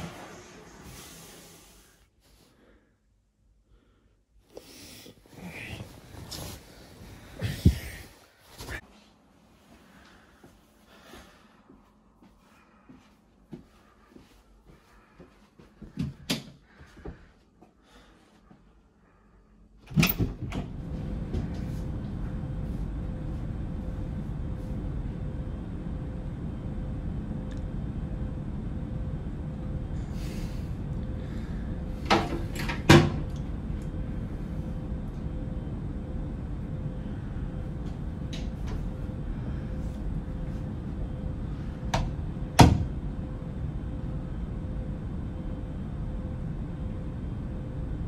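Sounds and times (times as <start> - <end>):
low hum: 0.0 - 48.0.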